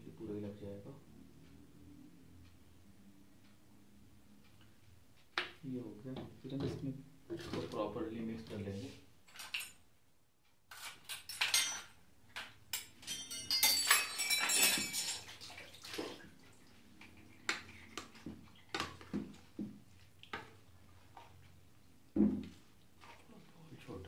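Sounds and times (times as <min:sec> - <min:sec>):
metal bowls and plates clattering: 0:10.7 - 0:12.0, 0:12.7 - 0:15.5.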